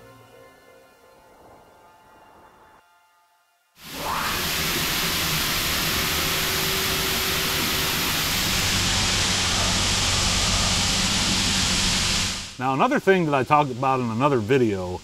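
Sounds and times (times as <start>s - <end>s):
machining hiss: 3.8s - 15.0s
low machine hum: 3.9s - 15.0s.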